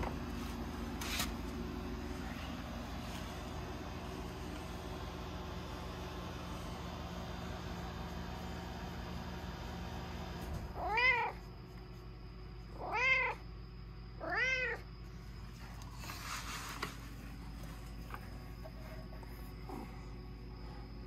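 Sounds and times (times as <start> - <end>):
cat meowing: 10.8 - 11.4, 12.8 - 13.4, 14.2 - 14.8.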